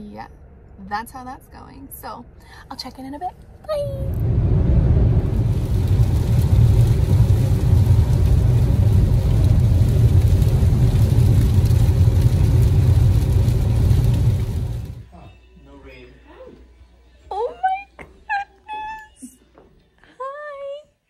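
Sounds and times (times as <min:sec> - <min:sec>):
road and engine rumble inside car: 0:03.6 - 0:15.0.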